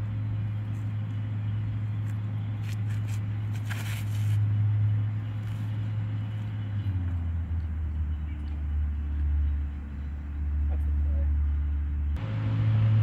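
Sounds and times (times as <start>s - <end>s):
steady low outdoor hum: 0.0s - 13.0s
soft scuffs on concrete: 2.0s - 4.4s
brief rustle: 2.6s - 4.4s.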